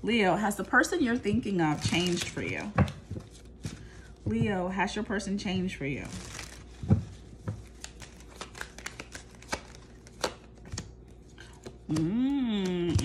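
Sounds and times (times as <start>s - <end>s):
cards being shuffled: 6.1s - 12.1s.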